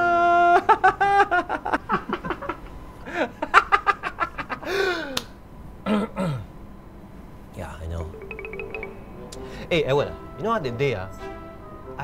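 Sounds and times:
man laughing loudly: 0.1s - 5.0s.

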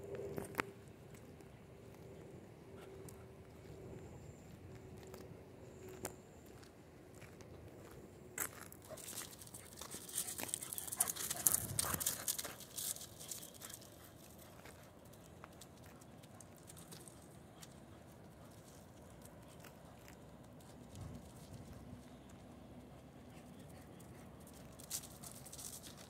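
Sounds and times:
footsteps on gravel: 5.9s - 15.9s.

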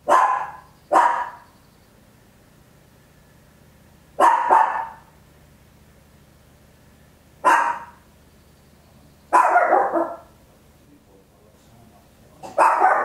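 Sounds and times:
small dog barking: 0.0s - 1.5s, 4.2s - 5.1s, 7.4s - 8.0s, 9.3s - 10.3s, 12.4s - 13.0s.

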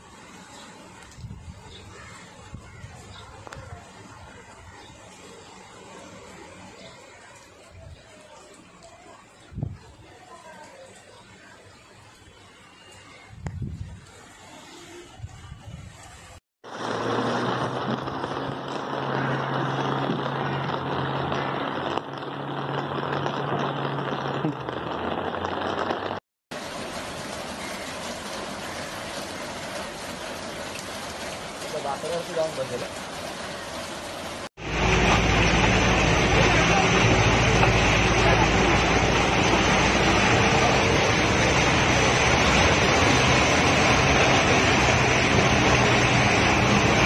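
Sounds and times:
heavy rain on floodwater: 0.0s - 47.0s
water noise: 0.0s - 47.0s
vehicle engine hum: 16.7s - 31.7s, 33.2s - 47.0s
bus engine running low: 33.6s - 47.0s.

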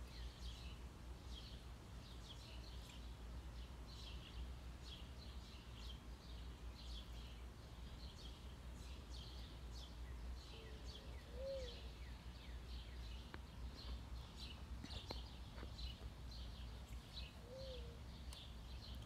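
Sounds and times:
small birds chirping: 0.0s - 19.0s
dove cooing: 10.5s - 12.0s, 17.4s - 18.0s.

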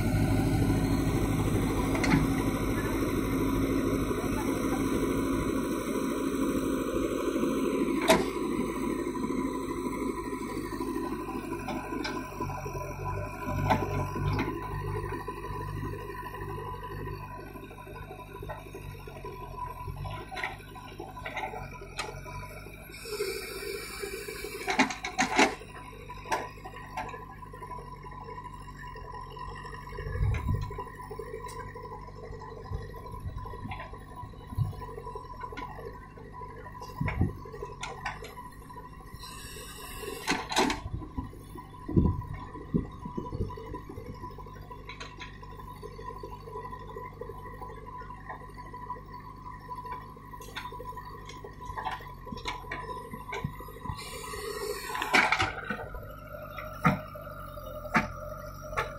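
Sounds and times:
diesel engine running: 0.0s - 58.9s
metallic clanks of bucket arm: 40.2s - 40.9s, 54.8s - 56.0s
rushing hiss: 54.0s - 55.0s.

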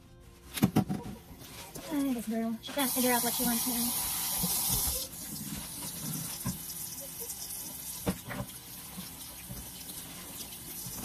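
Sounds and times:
faucet running into steel sink: 2.9s - 11.0s.

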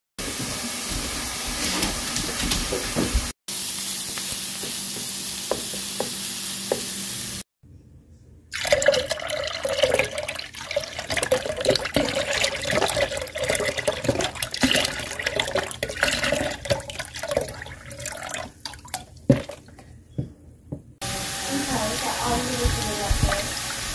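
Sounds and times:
broth pouring into crock: 8.5s - 19.0s.

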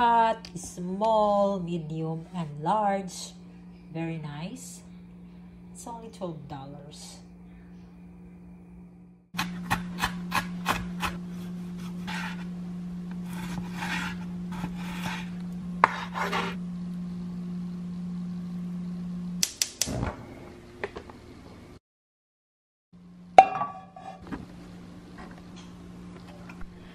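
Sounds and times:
steady low hum: 0.0s - 21.8s, 23.0s - 26.9s.

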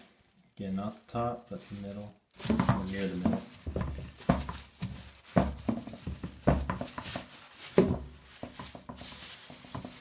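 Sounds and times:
plastic bag rustling and crinkling: 0.0s - 10.0s
dull bumps: 2.4s - 10.0s.

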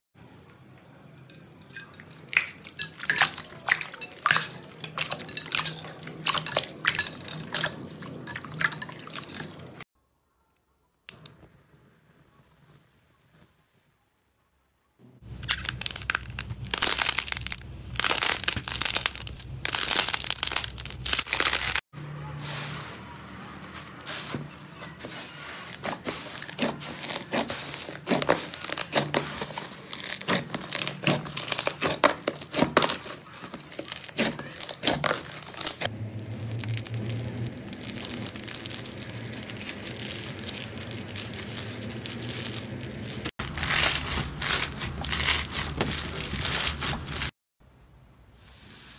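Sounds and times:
beaded slime crunching: 15.3s - 21.8s, 23.6s - 47.3s
slime crackling and crunching: 15.3s - 21.8s, 22.5s - 47.4s.

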